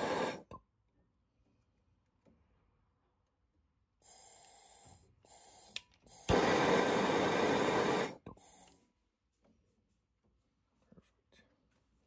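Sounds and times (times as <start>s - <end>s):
torch flame rushing: 0.0s - 0.4s, 6.3s - 8.2s
faint gas hiss: 0.0s - 0.5s, 4.0s - 9.0s
torch igniter click: 5.7s - 8.2s.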